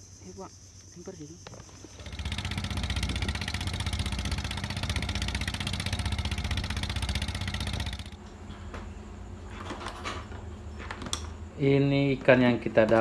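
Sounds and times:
motorboat engine drone: 0:01.9 - 0:08.2.

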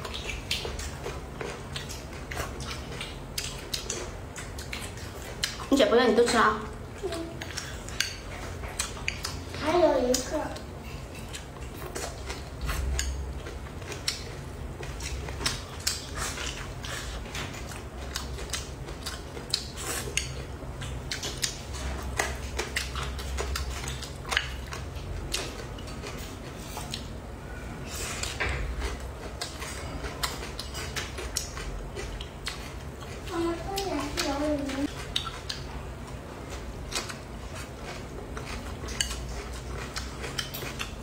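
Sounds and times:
chewing and mouth smacks: 0:00.0 - 0:27.2, 0:27.9 - 0:41.0.

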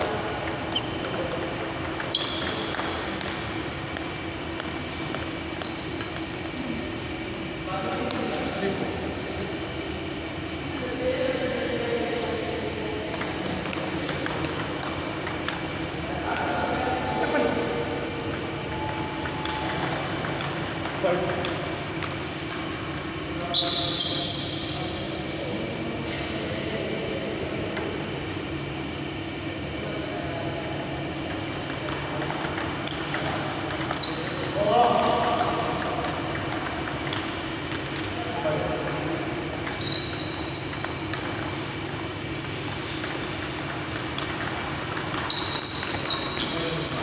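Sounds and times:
steady background hum: 0:00.0 - 0:47.0
ping-pong ball clicks: 0:00.4 - 0:06.6, 0:13.1 - 0:15.7, 0:18.3 - 0:22.2, 0:31.3 - 0:38.2, 0:39.6 - 0:47.0
shoe squeaks on floor: 0:00.7 - 0:01.3, 0:02.0 - 0:03.0, 0:05.6 - 0:06.2, 0:23.5 - 0:25.1, 0:26.6 - 0:27.4, 0:32.8 - 0:34.6, 0:39.7 - 0:41.2, 0:45.2 - 0:47.0
shoes squeaking on wooden floor: 0:00.7 - 0:01.3, 0:02.1 - 0:02.8, 0:39.7 - 0:41.0, 0:45.3 - 0:47.0.

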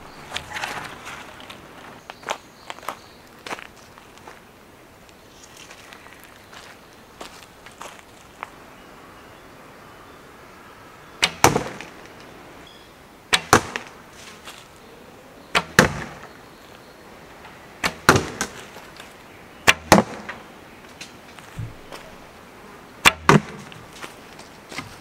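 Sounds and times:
arrow striking cardboard target: 0:11.2 - 0:11.9, 0:13.3 - 0:13.9, 0:15.6 - 0:16.3, 0:17.8 - 0:18.7, 0:19.7 - 0:20.4, 0:23.0 - 0:23.8.

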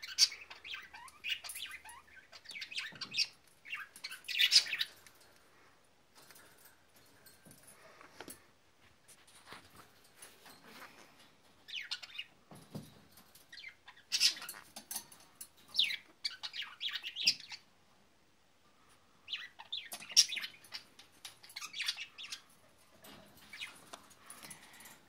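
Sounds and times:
parrot chirping and squeaking: 0:00.0 - 0:05.2, 0:10.6 - 0:12.4, 0:13.5 - 0:17.6, 0:19.3 - 0:24.7.

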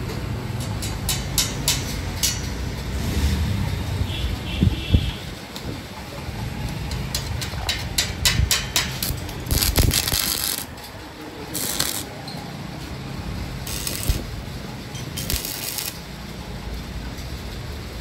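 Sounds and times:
metal clicks and clinks: 0:00.6 - 0:02.6
arc welding crackle: 0:08.2 - 0:18.0.

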